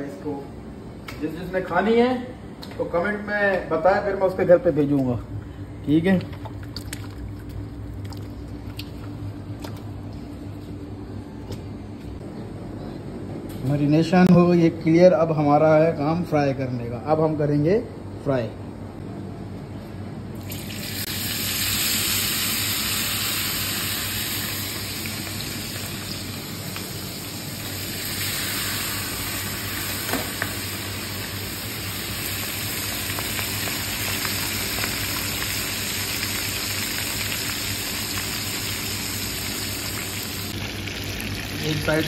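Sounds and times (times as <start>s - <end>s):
fish frying in hot oil: 20.5s - 42.0s.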